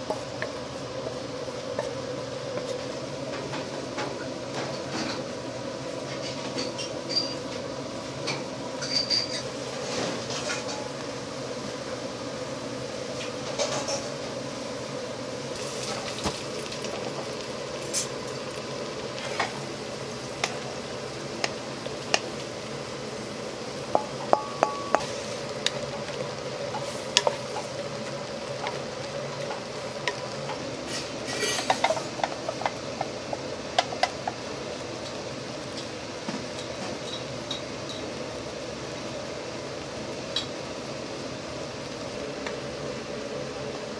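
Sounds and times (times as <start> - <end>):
spatula knocking against pot: 23.9 - 25.1.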